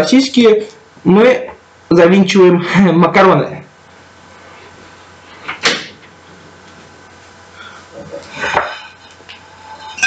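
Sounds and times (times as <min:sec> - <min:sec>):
frying pan clattering and scraping: 0:08.1 - 0:10.0.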